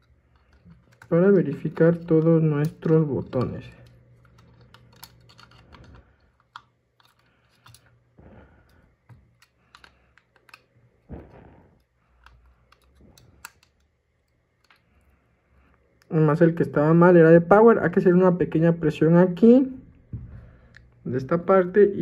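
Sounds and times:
small clicks of phone parts handled: 0:00.0 - 0:08.0, 0:09.0 - 0:10.8, 0:12.2 - 0:15.1.

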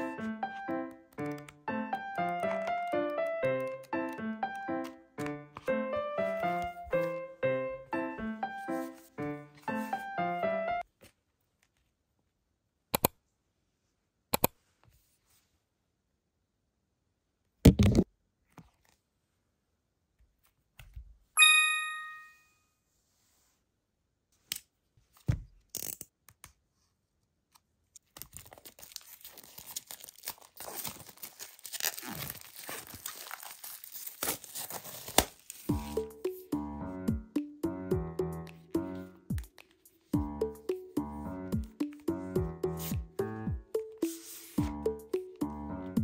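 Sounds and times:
chime-like ding: 0:21.4 - 0:22.5
plastic wrap crinkling and tearing: 0:28.0 - 0:35.7.

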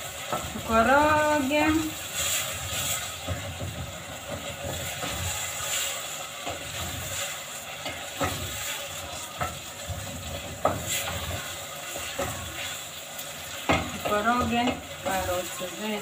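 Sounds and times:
steady sizzle: 0:00.0 - 0:16.0
spoon stirring stew in saucepan: 0:01.9 - 0:12.9
spoon knocking against pot: 0:13.7 - 0:14.8.

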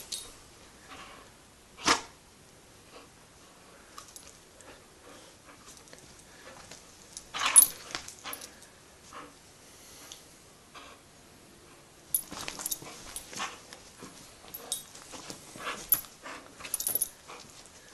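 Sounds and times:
dog playing tug: 0:05.5 - 0:08.6, 0:12.2 - 0:17.9.

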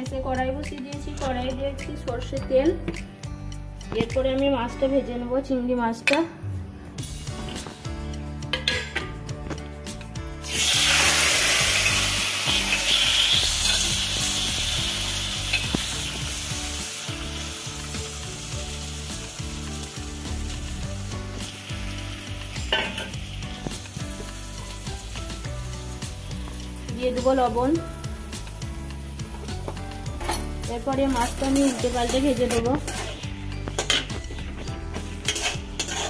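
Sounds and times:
prawns sizzling in hot oil: 0:10.4 - 0:36.0.

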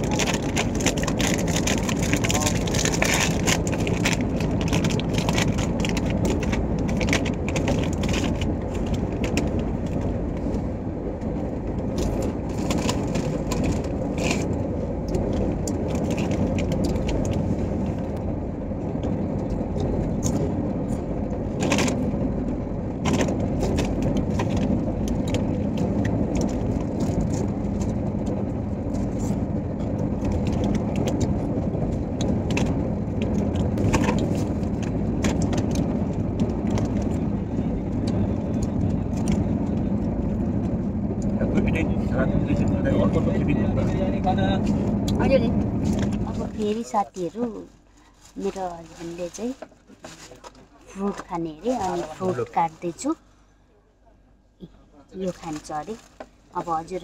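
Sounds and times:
plastic snack packet crinkling: 0:00.0 - 0:08.4
train running rumble: 0:00.0 - 0:53.5.

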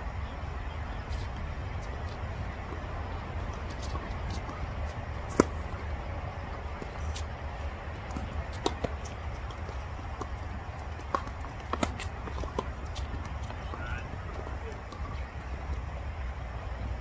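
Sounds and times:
low outdoor rumble: 0:00.0 - 0:17.0
tennis ball struck and bouncing: 0:03.7 - 0:05.9, 0:08.0 - 0:13.6.

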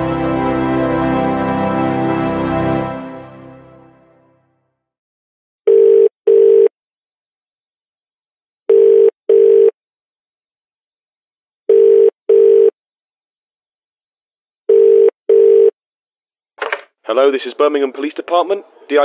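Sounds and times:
telephone ringing tone: 0:05.7 - 0:06.7, 0:08.7 - 0:09.8, 0:11.7 - 0:12.8, 0:14.7 - 0:15.8.

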